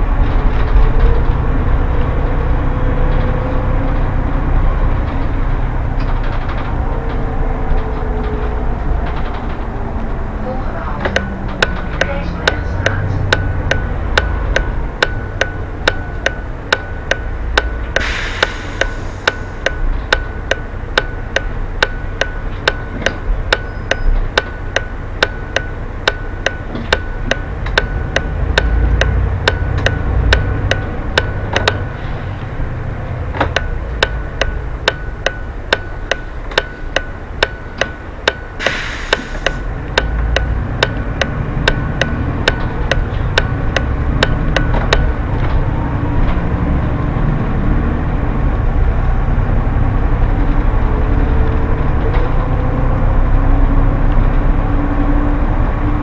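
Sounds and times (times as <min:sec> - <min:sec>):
bus engine rumble: 0:00.0 - 0:56.0
rapid ticking: 0:11.1 - 0:32.0, 0:33.5 - 0:45.4
short bursts of hiss: 0:18.0 - 0:19.3, 0:38.6 - 0:39.5.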